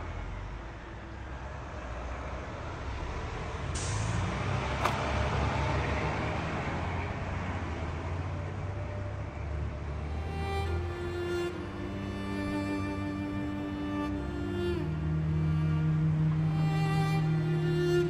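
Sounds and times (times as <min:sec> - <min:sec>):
hiss: 0:03.7 - 0:04.3
car engine rumbling: 0:04.6 - 0:18.0.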